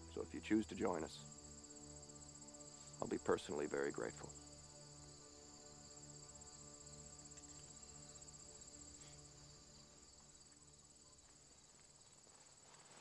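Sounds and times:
faint crickets chirring: 0:00.0 - 0:13.0.

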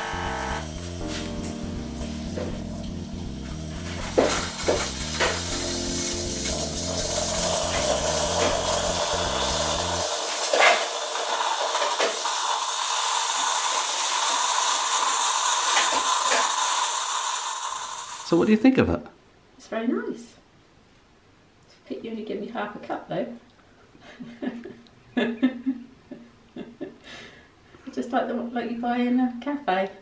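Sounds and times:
coffee maker pump hissing: 0:00.0 - 0:01.3, 0:03.8 - 0:18.6
steam hissing: 0:03.5 - 0:18.6
liquid pouring into mug: 0:06.5 - 0:18.3.

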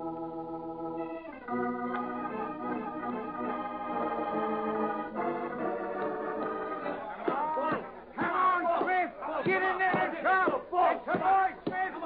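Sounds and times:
organ playing held chords: 0:00.0 - 0:07.3.

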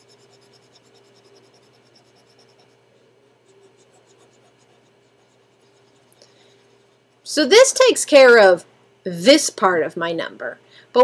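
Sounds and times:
stylus scratching on tablet: 0:00.0 - 0:07.3
faint electrical hum: 0:00.0 - 0:11.0.

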